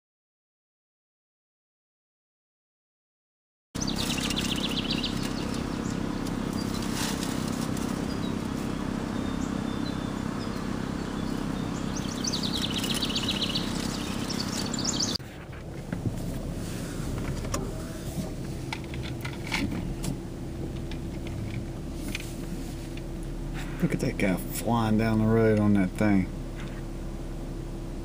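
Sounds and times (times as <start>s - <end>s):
songbird trilling: 3.8s - 15.2s
steady low outdoor hum: 3.8s - 28.0s.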